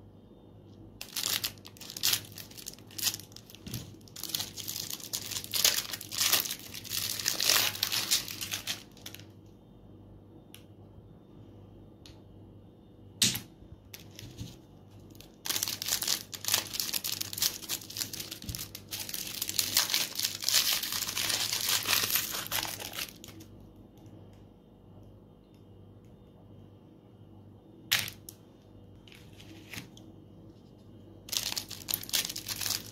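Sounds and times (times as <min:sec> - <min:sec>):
cellophane wrappers crinkling: 0:01.0 - 0:09.2, 0:14.0 - 0:23.5, 0:31.2 - 0:32.9
scissors cutting cellophane: 0:15.5 - 0:23.4.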